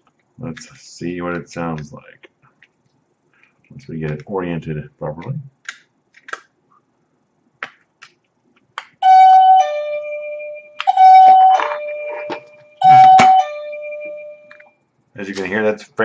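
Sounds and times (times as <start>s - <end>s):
ding-dong doorbell chime: 9.0s - 14.5s.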